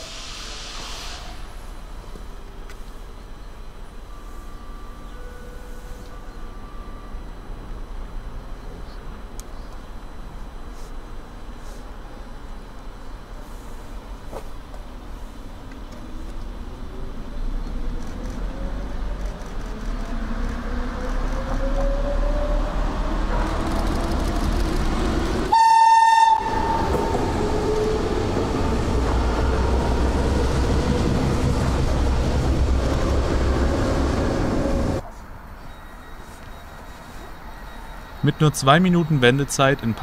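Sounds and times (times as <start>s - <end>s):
electric train motor whine: 0.2s - 35.0s
train cars rolling past: 15.9s - 40.0s
train horn blast: 25.4s - 27.2s.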